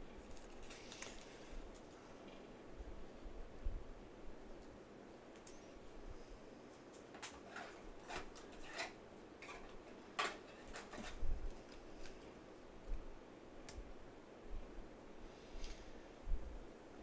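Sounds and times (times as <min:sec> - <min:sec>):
plastic sleeve crinkling: 0:00.2 - 0:02.0.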